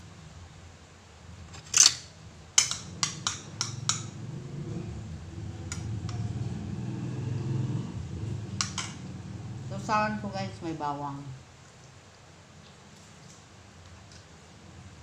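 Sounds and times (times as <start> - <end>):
low steady hum: 0.0 - 15.0
cutlery clinking on a plate: 2.6 - 4.1, 8.6 - 9.0.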